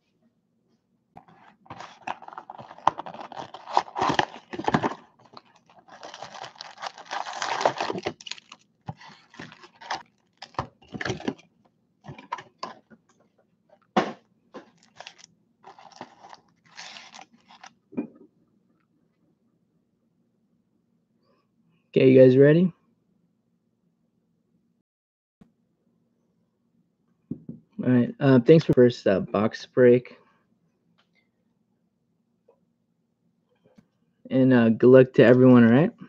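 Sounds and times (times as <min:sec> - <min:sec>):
foil card packs crinkling: 0:01.2 - 0:11.4, 0:14.7 - 0:17.7.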